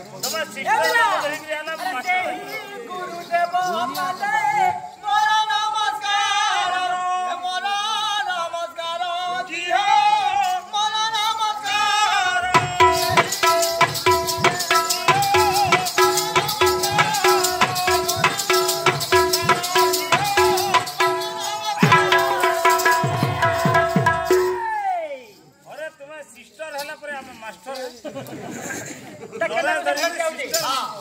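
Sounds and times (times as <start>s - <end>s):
rattle keeping time: 12.6s - 24.6s
barrel drum beat: 12.6s - 24.7s.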